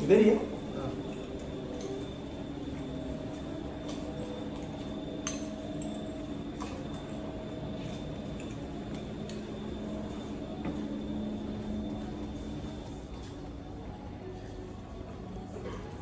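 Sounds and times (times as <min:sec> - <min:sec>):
steady room hum: 0:00.0 - 0:16.0.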